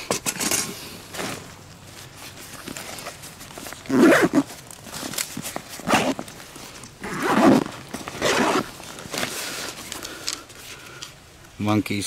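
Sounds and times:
fabric rustling: 1.0 - 10.8
zipper pulled open: 2.7 - 9.4.

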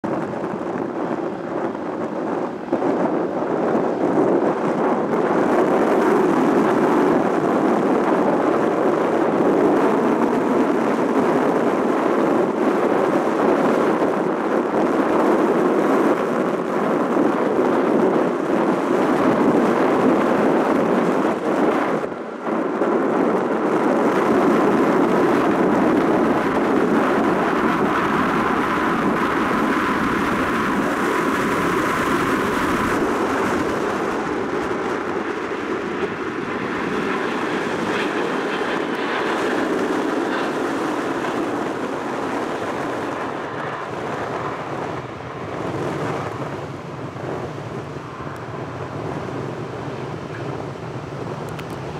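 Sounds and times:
jet aircraft climbing overhead: 0.0 - 51.9.

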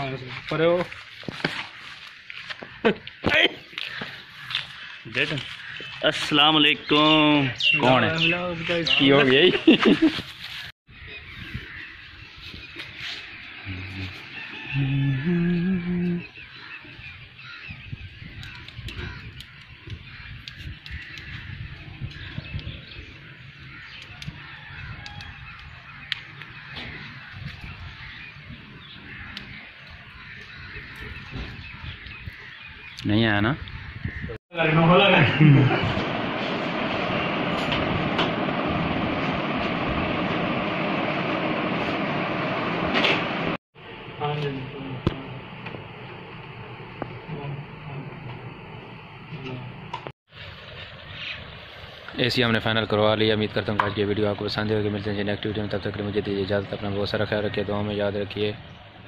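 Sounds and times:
birds calling: 0.0 - 59.0
air conditioner fan rushing air: 34.9 - 50.0
steady low rumble: 35.5 - 50.0.

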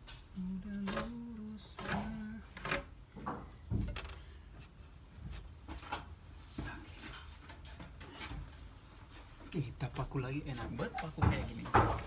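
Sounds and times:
lumber knocking and clunking: 0.9 - 4.6, 10.7 - 12.0.

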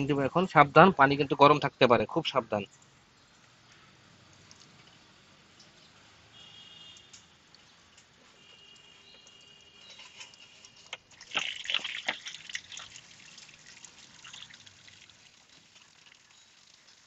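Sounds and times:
coolant trickling: 2.7 - 17.0
clicks and splashes: 7.0 - 17.0.

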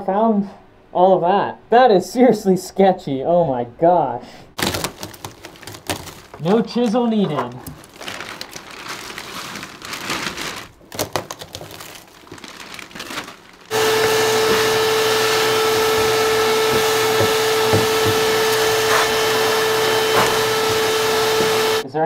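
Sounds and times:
material scraping and rustling: 4.6 - 21.8
electric motor whining: 13.7 - 21.8.

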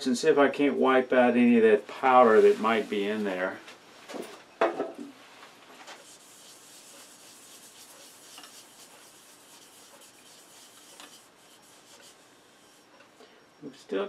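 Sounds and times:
paper towel rubbing wood: 2.1 - 3.3, 5.8 - 12.9.

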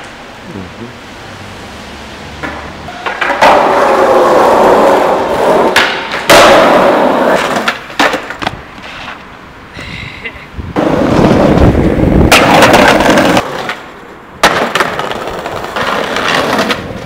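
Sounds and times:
skateboard wheels rolling on pavement: 0.0 - 17.0
skateboard clacks: 2.4 - 9.2, 12.3 - 17.0.

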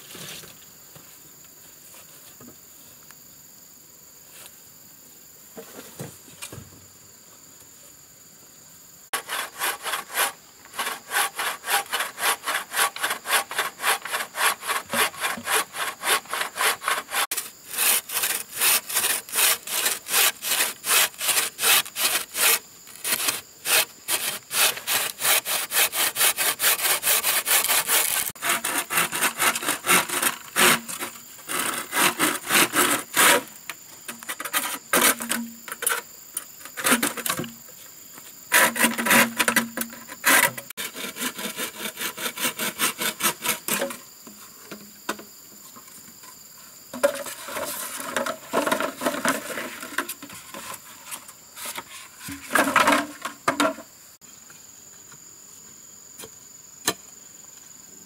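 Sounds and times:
hand saw cutting wood: 9.1 - 33.5, 38.5 - 44.0.

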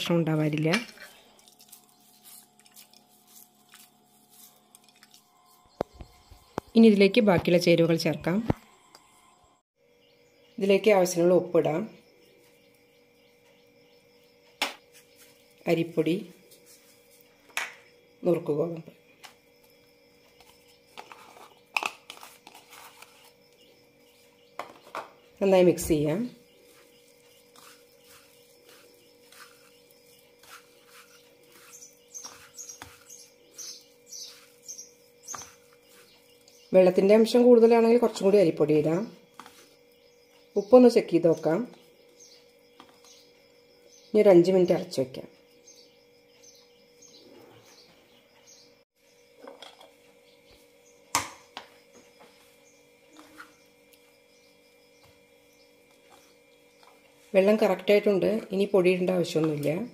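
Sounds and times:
hand rubbing crumbly mix: 1.0 - 5.3, 26.5 - 36.8
bird chirping: 5.3 - 16.3, 16.9 - 49.5, 50.1 - 59.9.

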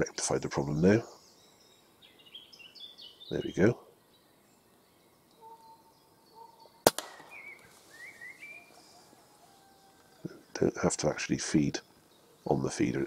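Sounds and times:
faint bird chirps: 0.5 - 13.0
air rifle shot: 6.8 - 7.7.

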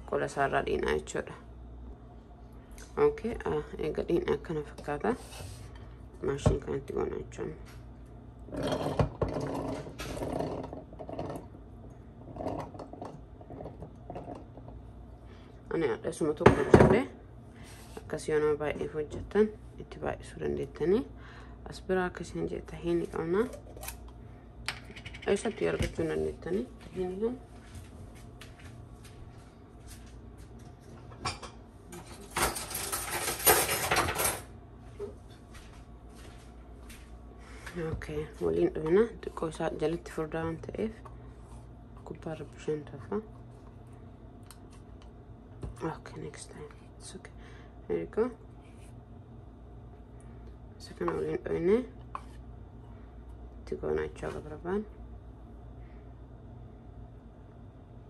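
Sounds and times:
kitchen utensils clattering: 31.2 - 34.5.

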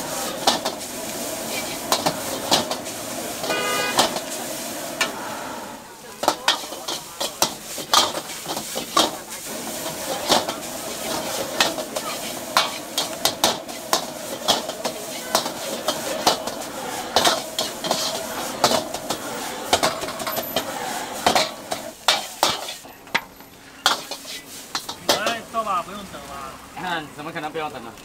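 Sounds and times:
frying sizzle: 0.0 - 28.0
metal ladle clanking on wok: 6.2 - 9.2, 9.8 - 25.5.

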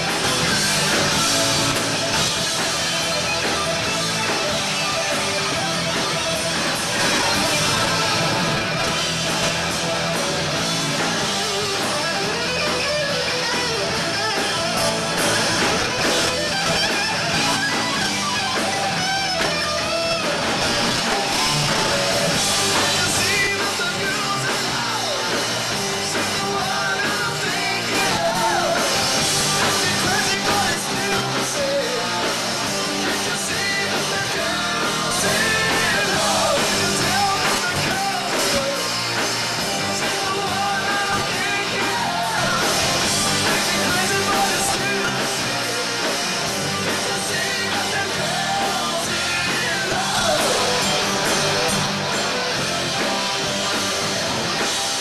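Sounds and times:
electric guitars: 0.0 - 55.0
live rock band: 0.0 - 55.0.

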